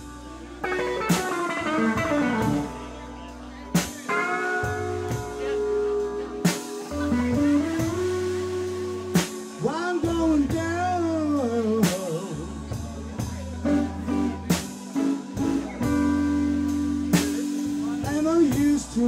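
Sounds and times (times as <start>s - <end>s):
blues-rock band playing: 0.0s - 19.0s
electric guitar bent notes: 0.6s - 9.8s.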